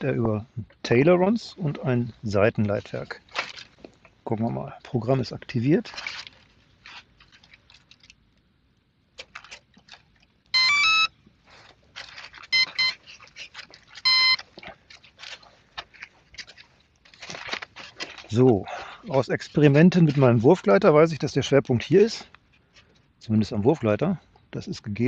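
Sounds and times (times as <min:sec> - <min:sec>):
handling rustles and clicks: 0:01.6 - 0:04.2, 0:05.5 - 0:10.5, 0:11.3 - 0:20.9
motor controller beeping tones: 0:10.6 - 0:11.1, 0:12.5 - 0:13.0, 0:14.0 - 0:14.4.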